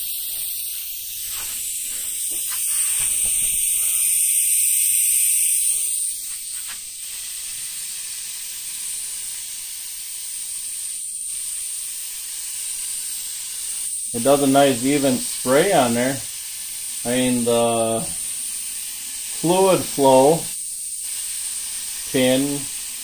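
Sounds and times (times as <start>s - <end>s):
spray gun air hiss: 0.0s - 23.0s.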